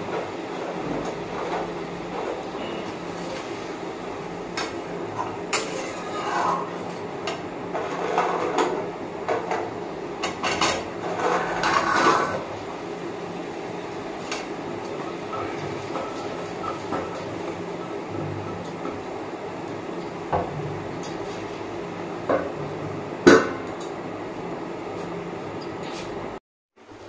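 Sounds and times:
metal spatula clinking and scraping: 5.5 - 6.7.

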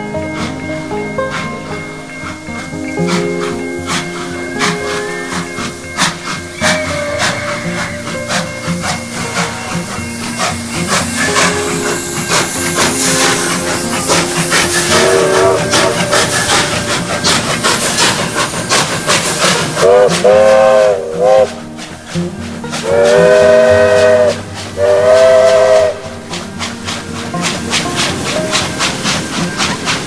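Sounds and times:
steam hiss: 0.0 - 30.0
steam locomotive exhaust beats: 0.0 - 30.0
steam whistle blasts: 3.0 - 18.5, 19.4 - 26.8.

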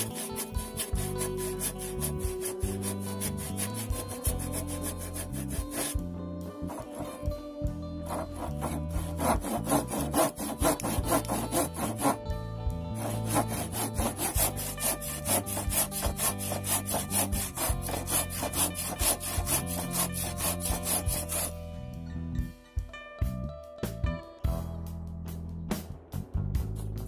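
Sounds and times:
hand saw rasping through wood: 0.0 - 6.0, 6.6 - 7.3, 8.1 - 12.2, 13.0 - 21.5.

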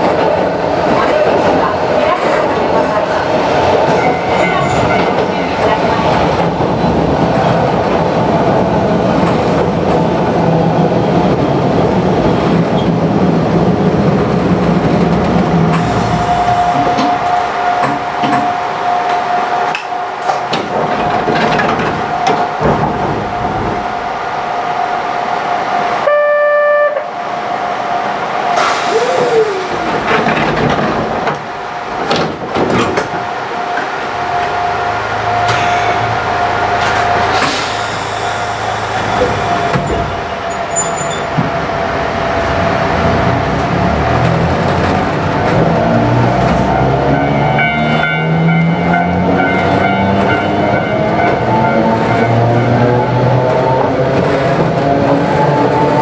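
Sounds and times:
short horn-like tone: 26.0 - 27.1.

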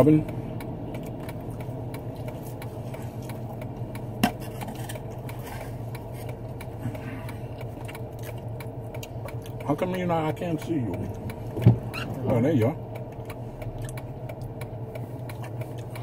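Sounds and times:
car cabin hum: 0.0 - 16.0
person chewing: 0.8 - 9.6, 13.0 - 16.0.

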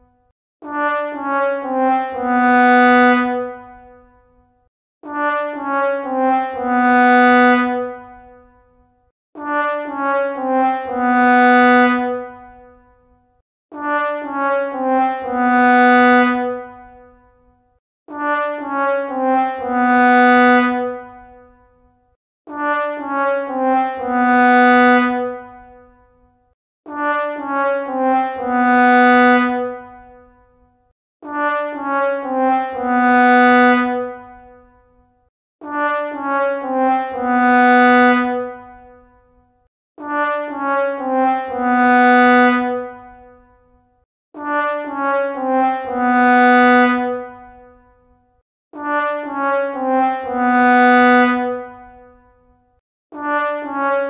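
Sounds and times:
sad trombone sound effect: 35.6 - 37.2, 40.0 - 41.6, 44.4 - 46.0, 48.8 - 50.3.

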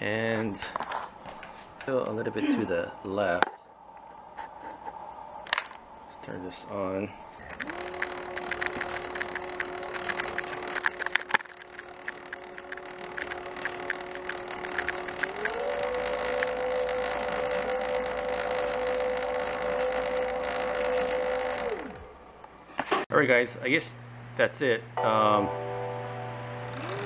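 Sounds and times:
electric motor whining: 7.4 - 22.2, 26.5 - 27.0
chain clicking rattle: 7.5 - 15.6.

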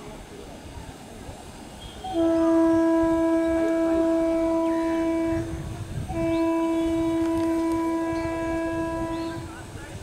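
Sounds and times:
low rumble of train: 0.0 - 10.0
train horn blast: 1.8 - 9.6.

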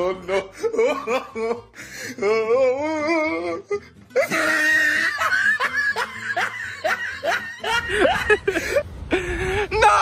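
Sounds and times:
people laughing: 4.2 - 9.5.

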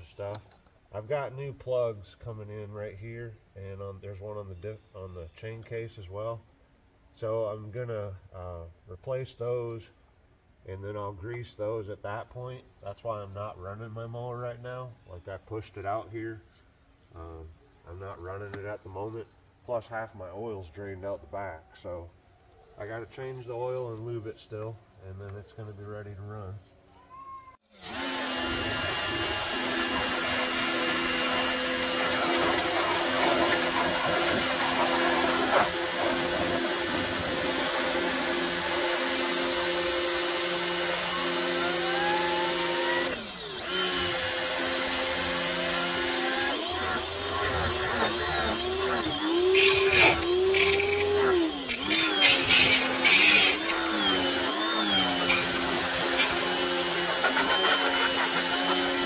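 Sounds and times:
pressure washer pump motor humming: 27.8 - 59.0
water spray hissing on metal: 29.6 - 43.0, 43.9 - 46.5.

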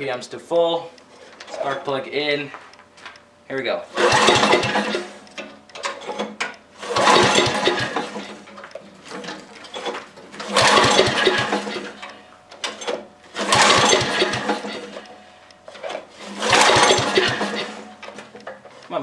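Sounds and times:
engine cranking on pull-start: 3.9 - 18.7.

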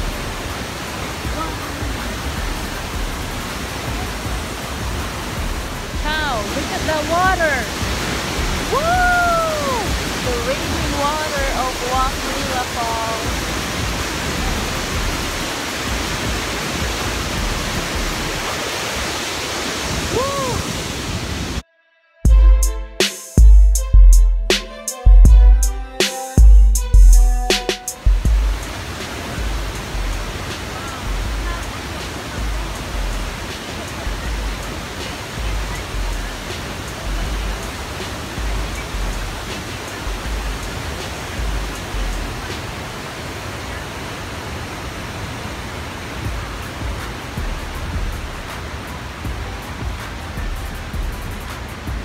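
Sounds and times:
waterfall rushing: 0.0 - 21.6, 24.5 - 52.0
person vocalizing ooh: 8.6 - 10.1, 20.1 - 20.8.

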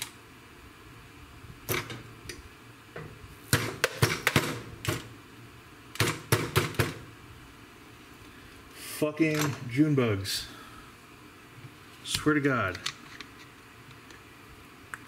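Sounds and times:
sharp knocks of hard objects: 3.5 - 5.1, 6.0 - 7.1.

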